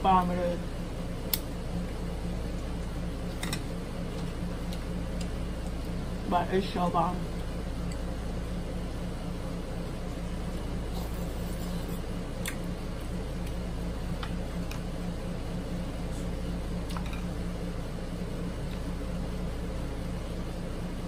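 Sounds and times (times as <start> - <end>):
low room hum: 0.0 - 21.0
clicks and smacks from eating shells: 4.1 - 6.0, 12.4 - 12.6.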